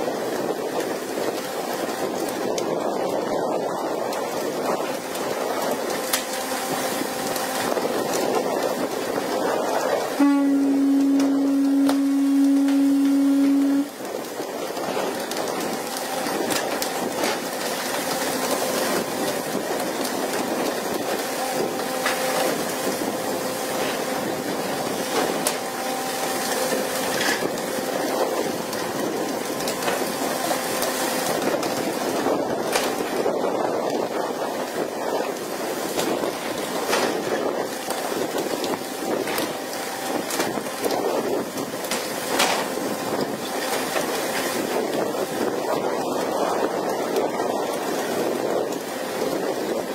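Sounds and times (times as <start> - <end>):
sea spray breaking: 0.1 - 49.9
faint engine hum: 4.6 - 33.4
loud steady horn note: 6.1 - 17.6, 20.3 - 31.6.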